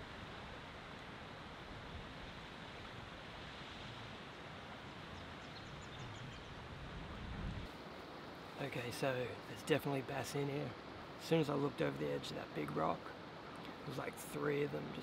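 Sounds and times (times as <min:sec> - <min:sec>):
river running over rocks: 0:07.7 - 0:15.0.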